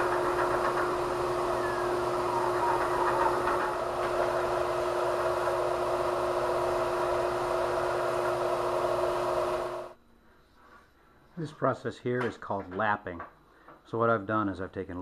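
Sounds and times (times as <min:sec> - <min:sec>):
belt sander humming: 0:00.0 - 0:10.0.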